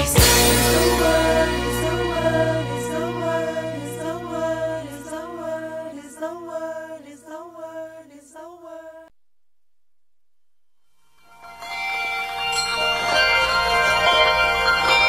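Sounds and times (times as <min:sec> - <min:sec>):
person singing over held chords: 0:00.0 - 0:09.1.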